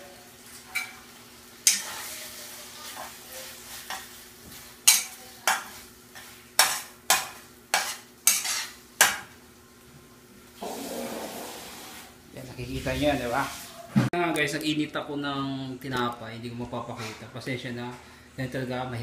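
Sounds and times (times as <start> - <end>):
food sizzling: 0.0 - 13.9
spoon scraping a frying pan: 1.6 - 2.2, 4.8 - 9.3.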